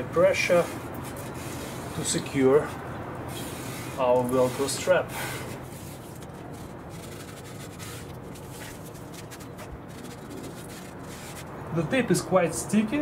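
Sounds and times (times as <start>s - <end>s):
fingers rubbing velcro strap: 5.4s - 11.5s.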